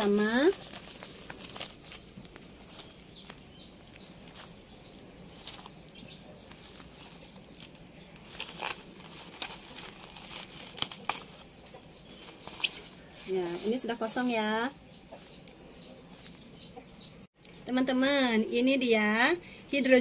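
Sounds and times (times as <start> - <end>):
plastic packaging crinkling: 0.0 - 12.9
small bird chirping: 0.0 - 17.3.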